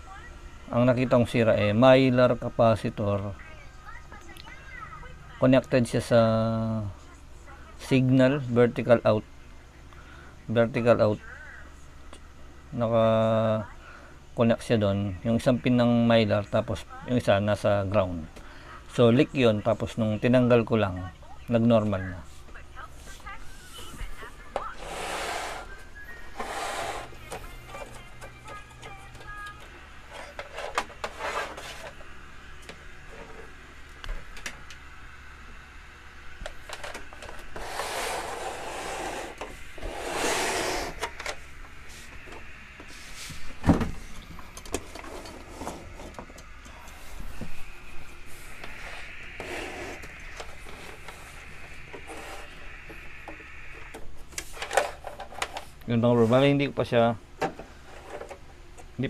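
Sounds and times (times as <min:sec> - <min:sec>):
television scraping on workbench: 0:24.7 - 0:27.9, 0:30.1 - 0:32.0, 0:37.5 - 0:42.1, 0:44.8 - 0:46.2, 0:48.4 - 0:51.4, 0:52.0 - 0:52.6, 0:57.7 - 0:58.4.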